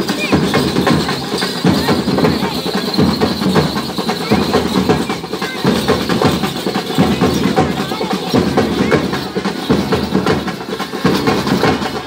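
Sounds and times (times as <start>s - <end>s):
snare and bass drums: 0.0s - 12.0s.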